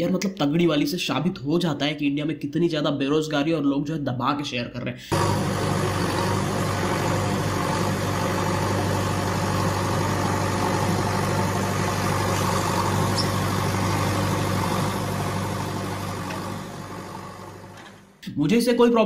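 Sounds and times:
backhoe engine humming: 5.1 - 18.0.

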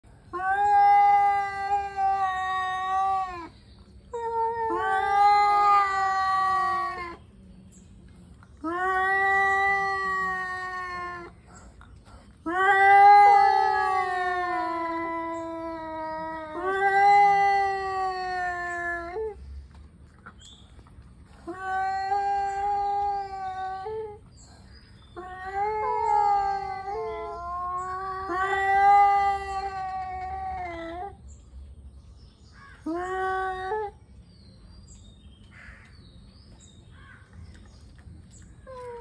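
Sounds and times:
cats yowling: 0.3 - 7.2, 8.6 - 11.6, 12.4 - 19.7, 21.3 - 24.3, 25.2 - 31.2.

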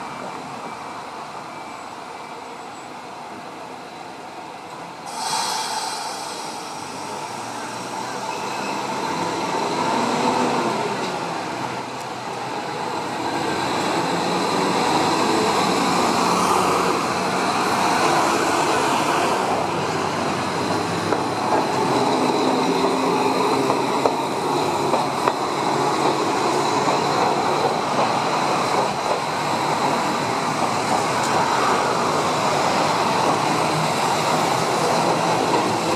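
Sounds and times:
road traffic: 4.3 - 35.9
tram wheels clicking over rail joints: 20.5 - 35.9.

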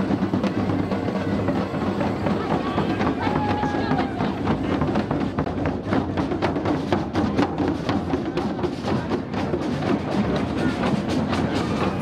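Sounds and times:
drums: 0.0 - 12.0.

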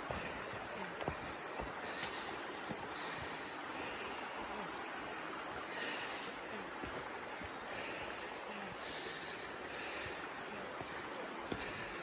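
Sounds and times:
footsteps on rocky trail: 0.0 - 12.0
water rushing: 0.0 - 12.0.

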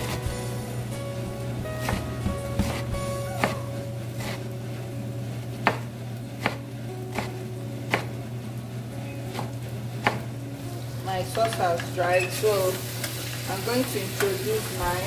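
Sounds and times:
knife chopping on wooden board: 1.6 - 4.4, 5.6 - 7.3, 7.9 - 8.1, 9.3 - 10.2.

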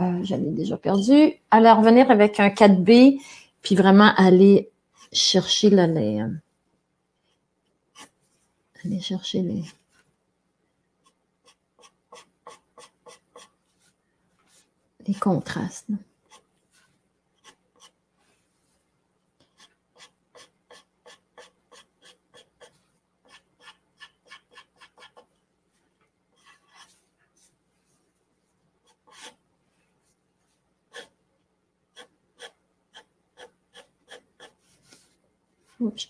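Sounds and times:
pencil scratching on paper: 7.9 - 8.2, 11.0 - 14.6, 16.2 - 18.5, 19.4 - 25.4, 26.3 - 27.6, 28.8 - 29.4, 30.9 - 31.2, 31.9 - 35.2.

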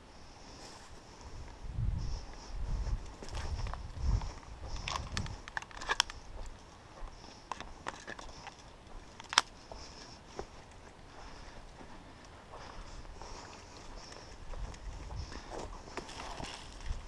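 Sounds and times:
footsteps on dry leaves: 0.6 - 1.0, 11.2 - 17.0.

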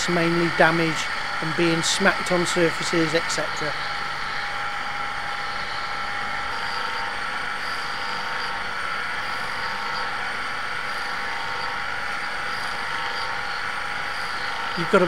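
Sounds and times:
polishing wheel grinding metal: 0.0 - 4.6.

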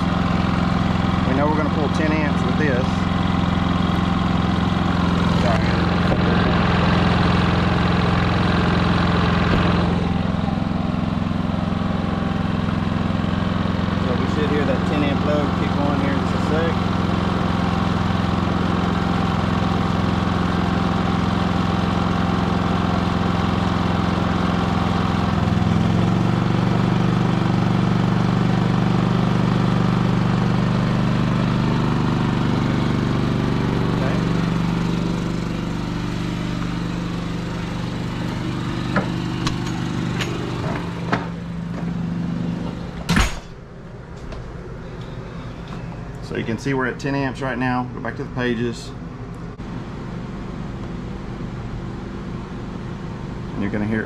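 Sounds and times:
generator engine running: 0.0 - 54.0
loud knock: 43.0 - 43.6.

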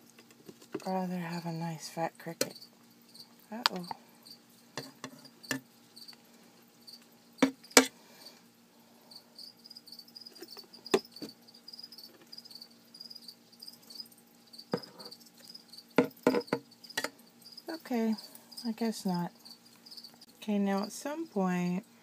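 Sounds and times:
cricket chirping: 2.3 - 8.3, 8.9 - 20.9
metal tongs knocking on plastic: 16.0 - 17.1.

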